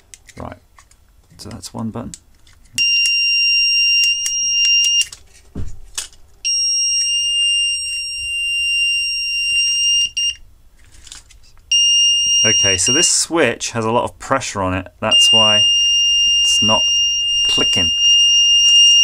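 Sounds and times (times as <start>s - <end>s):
high-pitched buzzer beeps: 2.8s - 5.1s, 6.5s - 10.4s, 11.7s - 13.2s, 15.1s - 19.0s.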